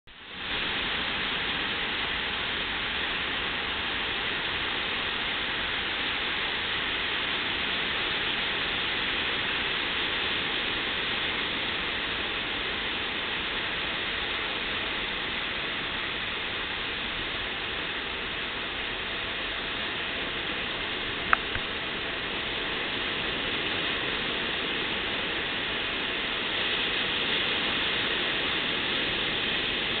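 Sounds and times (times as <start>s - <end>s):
ocean surf breaking: 16.2s - 30.0s.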